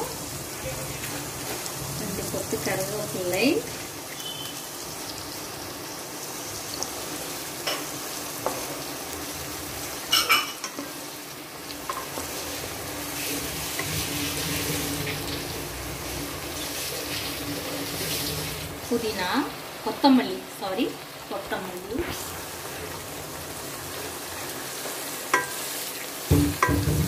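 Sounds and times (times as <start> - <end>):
vegetables sizzling in hot oil: 0.0 - 27.0
spatula knocking on pan: 25.3 - 25.6, 26.3 - 27.0.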